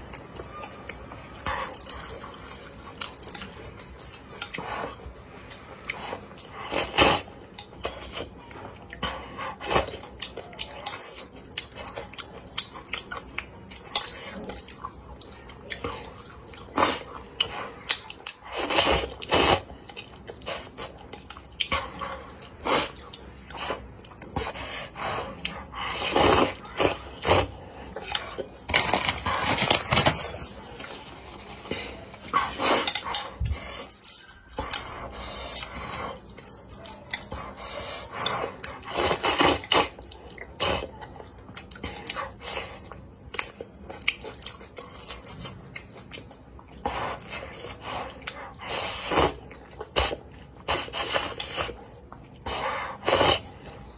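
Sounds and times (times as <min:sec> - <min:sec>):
wet chewing: 0:00.0 - 0:53.9
person slurping noodles: 0:18.5 - 0:19.7, 0:52.5 - 0:53.6.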